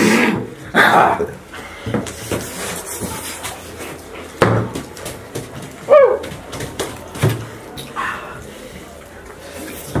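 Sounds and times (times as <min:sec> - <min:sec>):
knocks and clatter at a table: 0:04.4 - 0:07.6.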